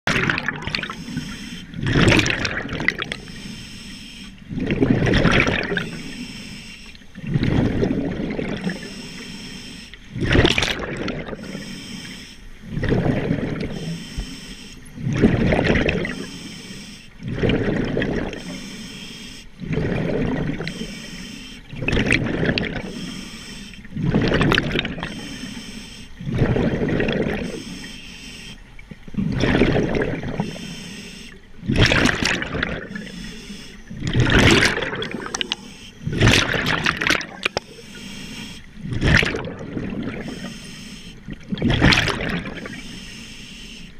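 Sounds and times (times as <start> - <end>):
exhaled bubbles gurgling: 0.1 - 43.7
diver breathing through regulator: 0.8 - 1.8, 3.0 - 4.4, 5.6 - 7.0, 8.5 - 10.0, 11.3 - 12.5, 13.5 - 15.0, 15.9 - 17.2, 18.2 - 21.7, 22.7 - 23.9, 24.9 - 28.6, 30.4 - 31.4, 37.4 - 38.8, 40.2 - 41.2.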